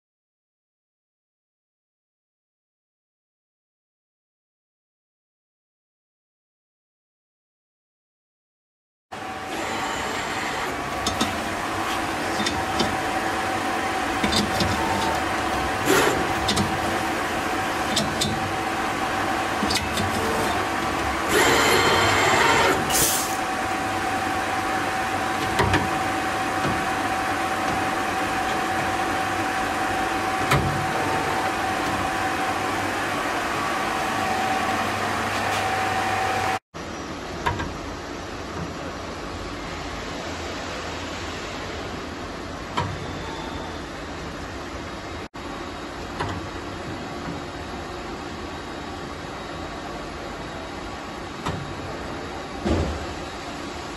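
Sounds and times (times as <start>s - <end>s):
machine humming with steady tone: 9.2s - 40.0s.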